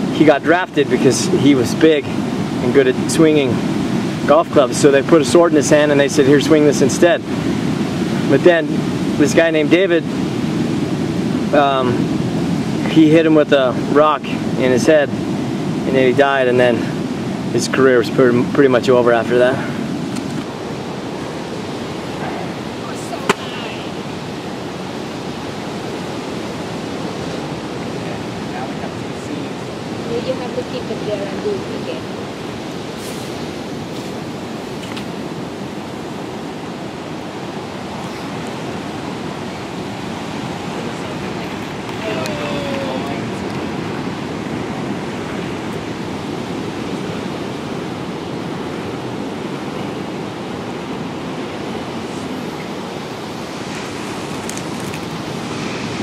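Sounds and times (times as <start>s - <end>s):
surf: 0.0s - 56.0s.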